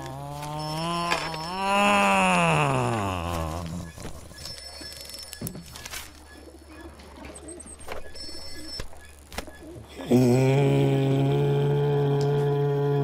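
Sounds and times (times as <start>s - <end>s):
man groaning: 0.0s - 3.9s, 10.0s - 13.0s
soft cooing: 0.0s - 4.6s.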